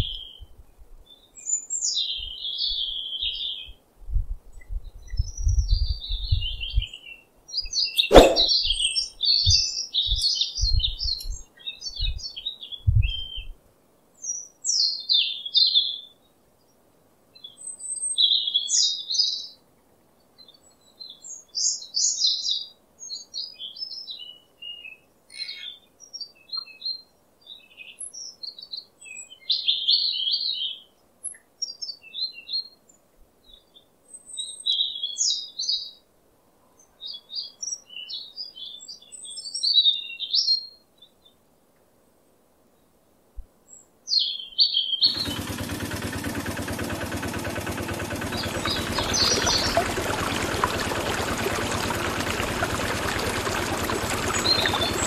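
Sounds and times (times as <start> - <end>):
small birds chirping: 4.6 - 13.5, 44.1 - 55.0
water pouring into basin: 8.1 - 8.5, 45.1 - 55.0
small motor running: 45.1 - 55.0.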